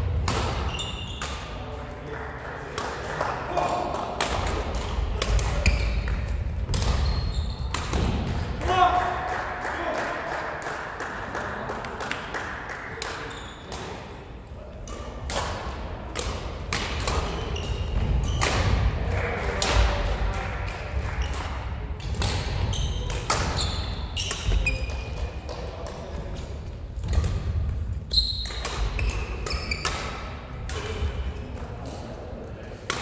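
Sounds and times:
rackets striking shuttlecock: 0.0s - 1.6s, 4.2s - 8.5s, 14.8s - 18.8s, 21.3s - 31.2s.

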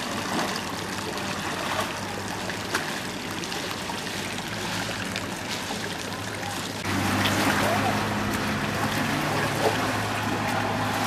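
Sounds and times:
rainwater trickling through street: 0.0s - 11.0s.

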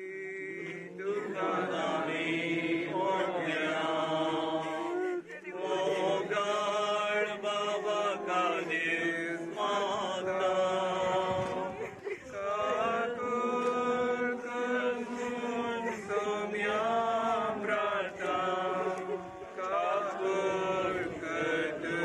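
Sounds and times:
slow hymn sung in held notes: 0.0s - 22.0s.

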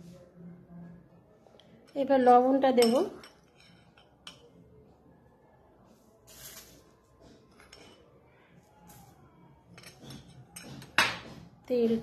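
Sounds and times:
spoon clinking on bowl: 2.7s - 4.6s
salt sprinkling hisses: 6.3s - 6.8s.

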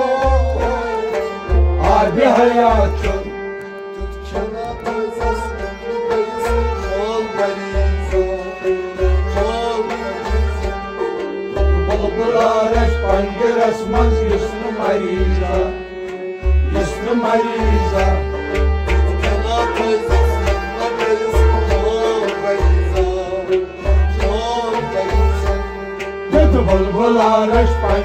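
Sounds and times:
harmonium chords: 0.0s - 28.0s
man singing: 0.0s - 28.0s
hand drum beat: 16.4s - 28.0s.

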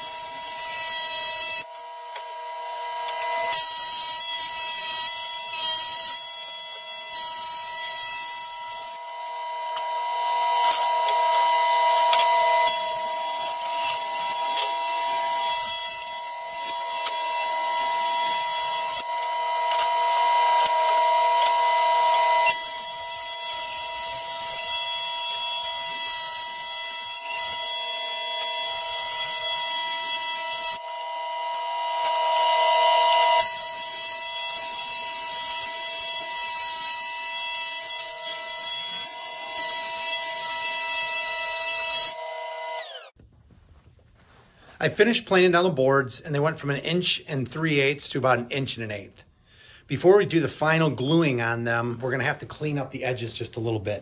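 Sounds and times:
thickness planer high-pitched whine: 0.0s - 43.2s.

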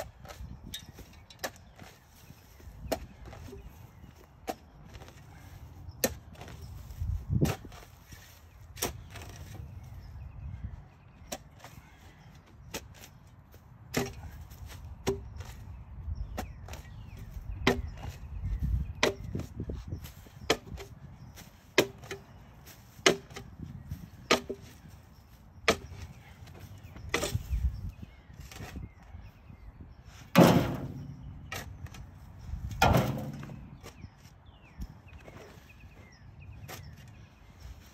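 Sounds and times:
shovel chopping into soil: 30.3s - 32.0s.

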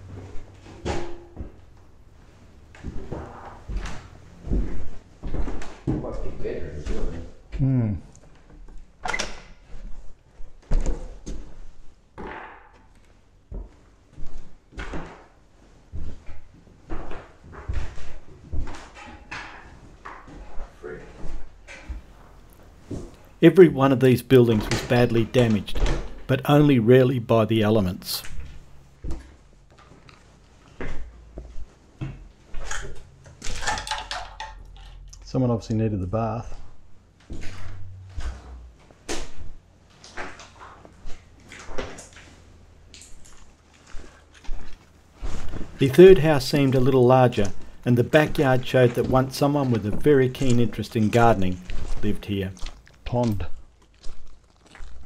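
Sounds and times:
footsteps on wooden floorboards: 1.4s - 7.5s, 12.9s - 23.4s, 28.2s - 32.6s, 43.1s - 55.0s.

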